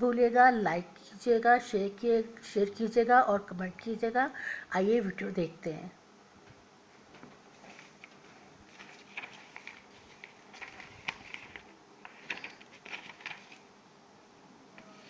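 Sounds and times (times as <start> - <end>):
paper rustling and crinkling: 7.1 - 13.7.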